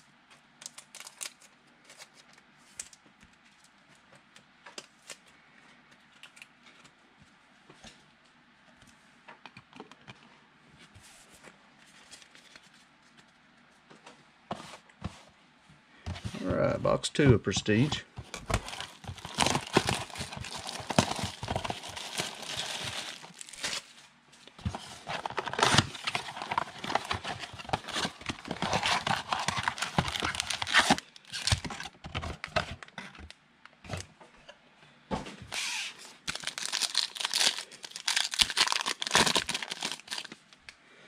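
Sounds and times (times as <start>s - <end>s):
card wrapping tearing and crinkling: 0.6s - 2.2s, 17.7s - 24.0s, 24.6s - 32.8s, 35.5s - 40.4s.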